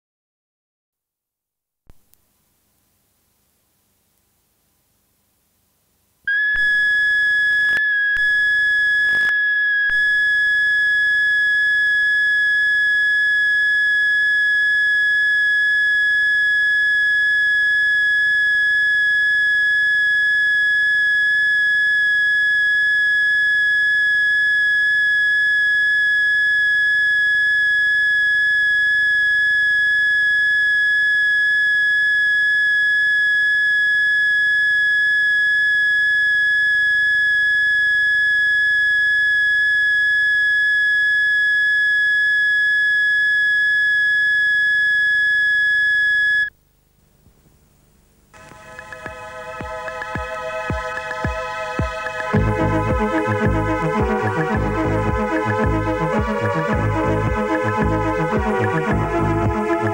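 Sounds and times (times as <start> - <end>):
high-pitched test tone: 48.4 - 59.9.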